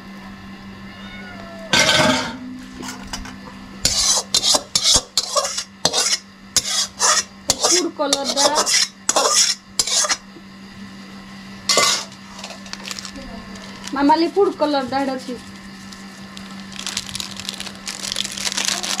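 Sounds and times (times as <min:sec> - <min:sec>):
metal spoon scraping a pan: 0:03.8 - 0:10.2, 0:11.7 - 0:12.7.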